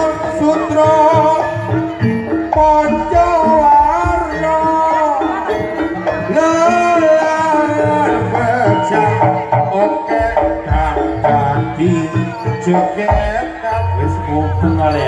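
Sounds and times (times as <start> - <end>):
drums: 0.0 - 15.0
gamelan instruments: 0.0 - 15.0
person singing: 0.0 - 15.0.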